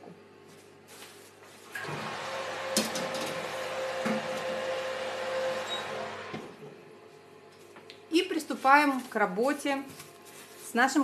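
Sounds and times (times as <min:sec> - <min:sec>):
oven whirring: 0:01.5 - 0:09.4.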